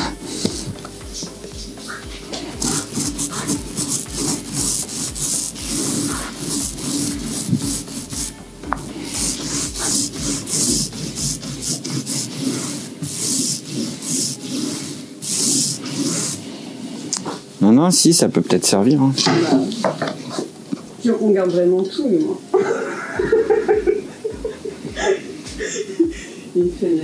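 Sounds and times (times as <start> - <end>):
brush sweeping dust into dustpan: 0.0 - 17.4.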